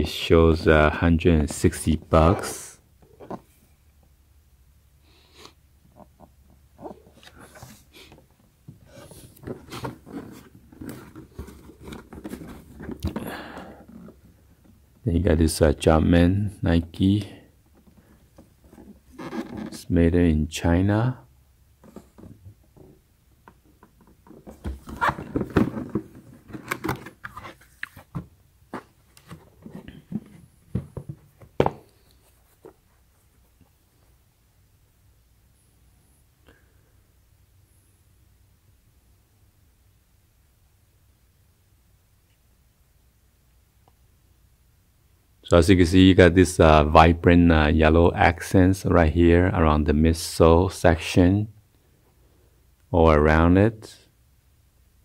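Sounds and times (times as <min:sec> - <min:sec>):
hands handling cardboard box: 0:06.8 - 0:13.3, 0:23.7 - 0:33.0.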